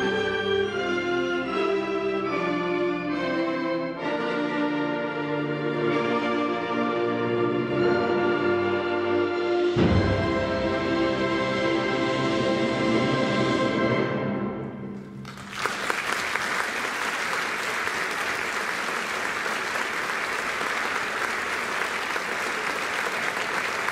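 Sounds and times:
audience applause: 15.2s - 23.9s.

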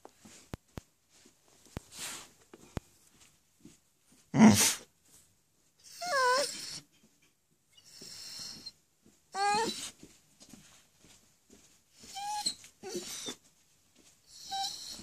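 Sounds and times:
dog whining: 5.8s - 6.9s, 7.8s - 10.0s, 12.0s - 13.4s, 14.3s - 15.0s.

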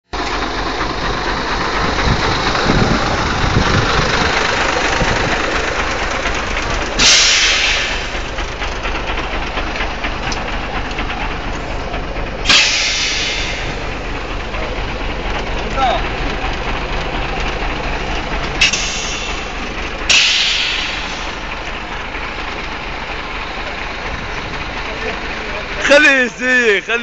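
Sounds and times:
heavy machine engine running: 0.1s - 27.0s
loud hisses: 2.4s - 8.6s, 12.4s - 16.2s, 18.5s - 23.9s.

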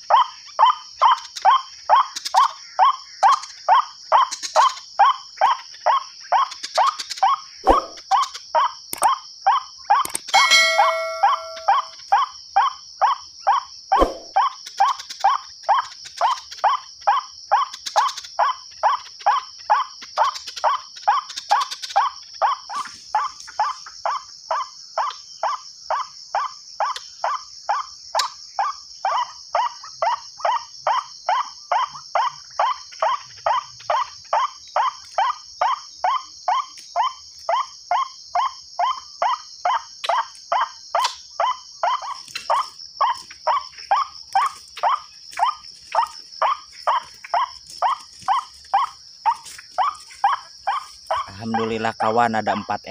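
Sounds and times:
bird call from loudspeaker: 10.4s - 11.9s.

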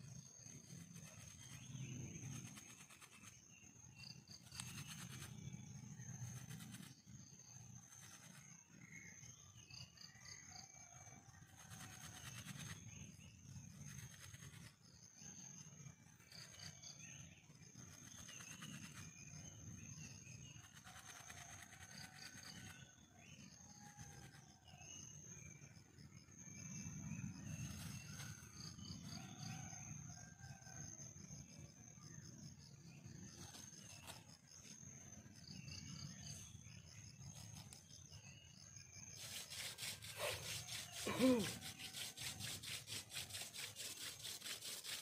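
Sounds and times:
wooden spindle rubbing friction: 39.2s - 45.0s.

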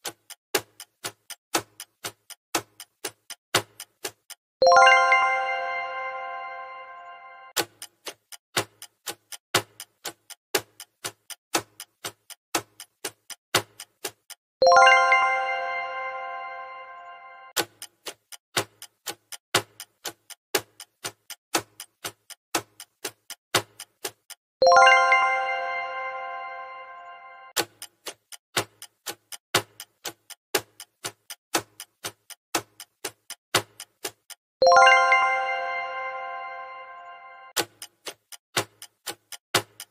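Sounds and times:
clock-like timer ticking: 0.0s - 5.2s, 7.5s - 15.2s, 17.5s - 25.2s, 27.5s - 35.2s, 37.5s - 39.9s
chime: 4.6s - 7.6s, 14.6s - 17.5s, 24.6s - 27.6s, 34.6s - 37.6s.

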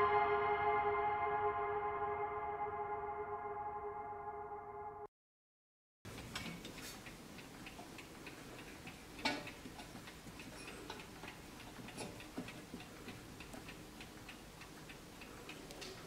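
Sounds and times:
clock ticking faintly: 6.1s - 16.0s.

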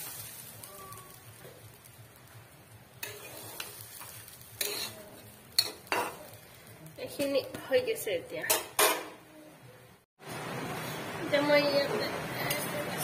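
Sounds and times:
food sizzling: 0.0s - 9.3s, 10.2s - 13.0s
metal spoon scraping a pan: 3.0s - 6.5s.

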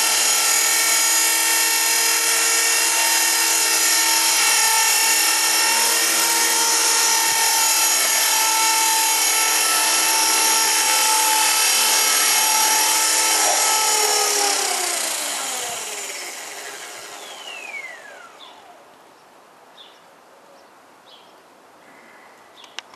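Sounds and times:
electric helicopter motor whine: 0.0s - 18.9s.

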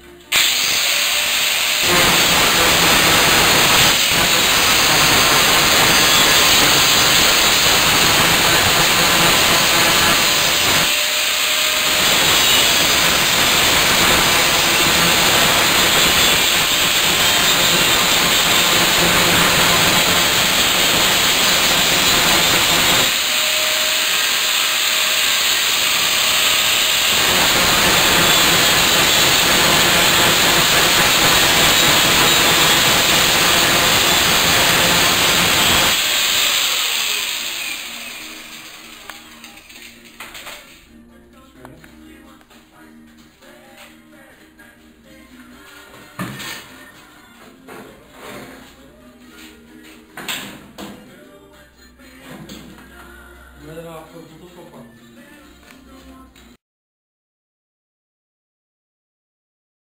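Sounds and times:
angle grinder grinding metal: 0.3s - 40.7s.

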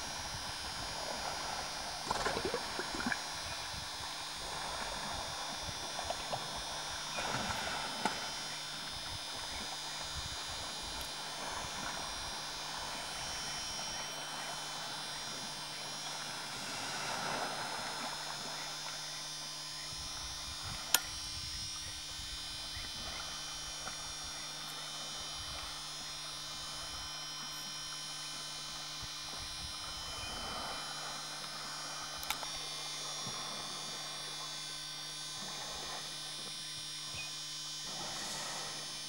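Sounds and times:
electrical hum and whine: 0.0s - 39.0s.

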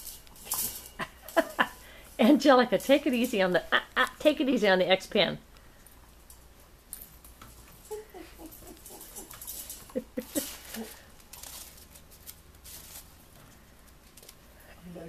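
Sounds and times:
claws scratching on wire: 5.9s - 13.3s.

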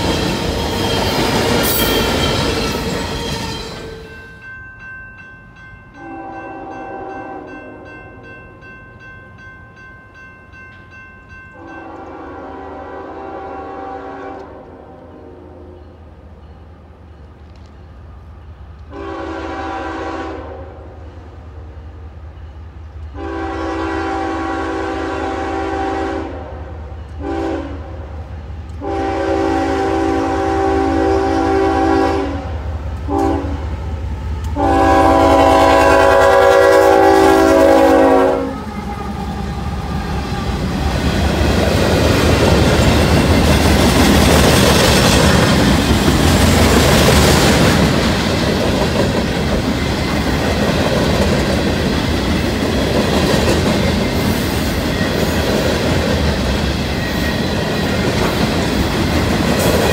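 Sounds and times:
locomotive air horn blasts: 6.0s - 8.0s, 11.6s - 15.8s, 18.9s - 21.0s, 23.2s - 28.2s, 28.8s - 33.7s, 34.6s - 38.7s.

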